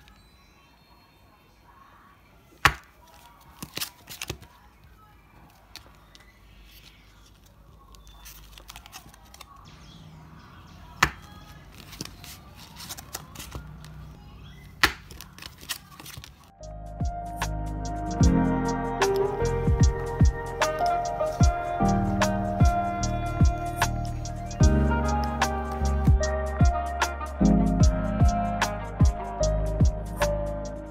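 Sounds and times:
faint rustling of cards: 2.4 - 10.0, 10.8 - 16.6.

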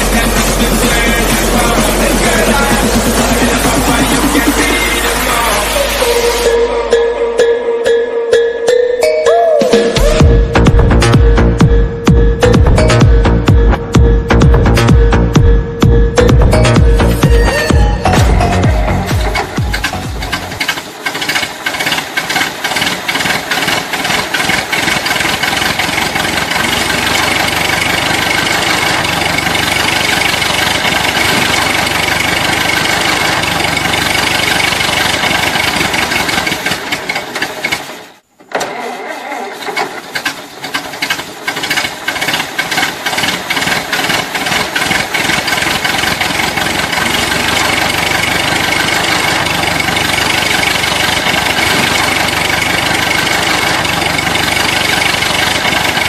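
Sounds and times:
motor running with fast rattle: 19.2 - 38.2, 39.6 - 56.0.

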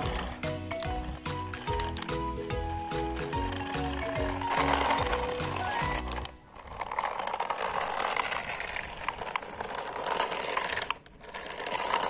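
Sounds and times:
scattered clicks: 0.0 - 12.0
toy car motor whirring: 0.0 - 12.0.

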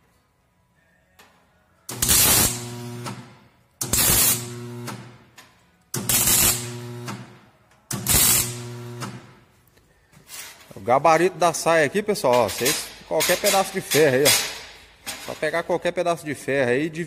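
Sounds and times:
arc welder crackling and hissing: 1.9 - 5.1, 6.0 - 7.3, 7.9 - 9.2
welder buzzing hum: 1.9 - 5.2, 6.0 - 9.4.

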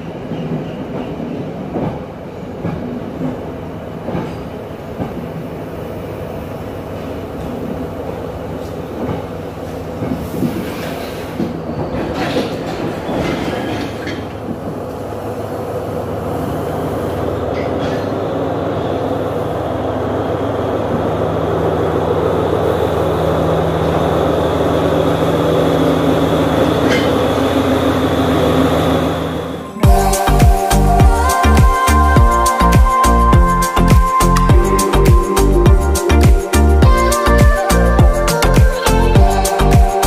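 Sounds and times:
diesel train engine humming: 3.3 - 39.8
wheels clicking over rail joints: 10.0 - 15.0.

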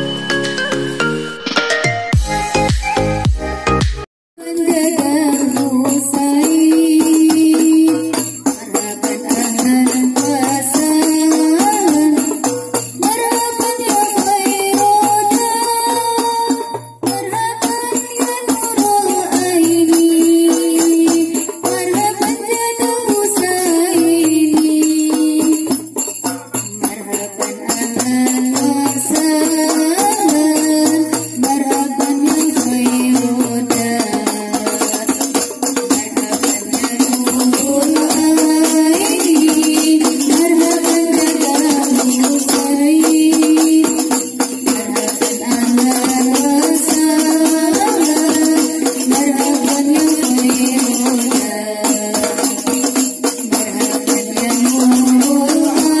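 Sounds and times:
jingling percussion rhythm: 0.0 - 56.0
girls singing through microphones: 26.8 - 35.3, 35.9 - 52.6, 53.4 - 56.0.

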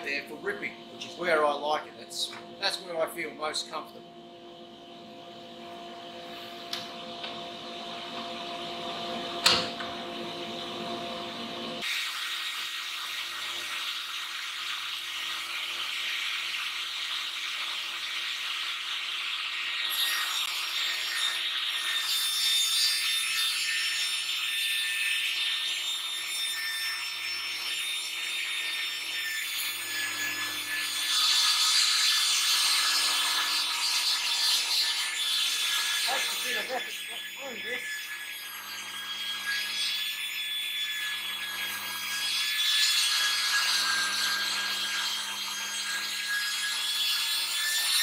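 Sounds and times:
high saw whine: 25.2 - 31.2, 32.5 - 48.0.

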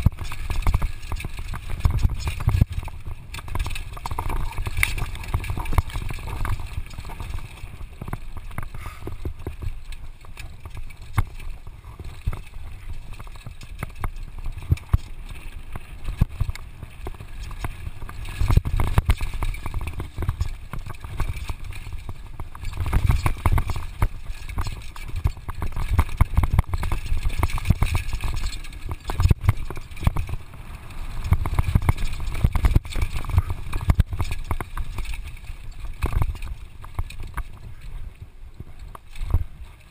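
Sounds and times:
bike rattling and clacking: 0.0 - 39.9
tyres rolling over dirt and stones: 0.0 - 39.9.

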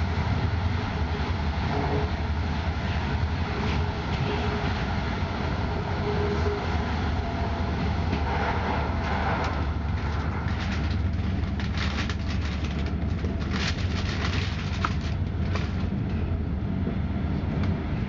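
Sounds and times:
train rumbling on track: 0.0 - 18.0
rapid clicks and rattles: 9.4 - 16.0.

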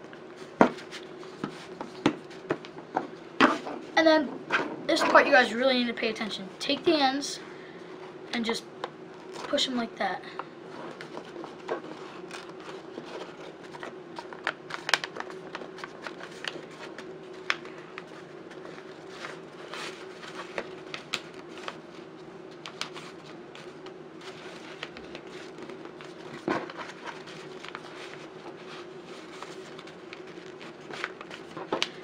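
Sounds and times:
steady low hum: 0.0 - 32.0
paper crinkling: 10.7 - 32.0.

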